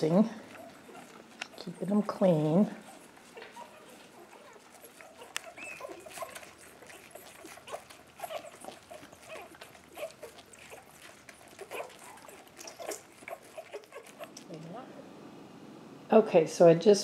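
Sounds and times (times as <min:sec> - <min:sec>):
puppies suckling and licking: 0:00.0 - 0:14.8
puppies squeaking and whimpering: 0:00.3 - 0:14.6.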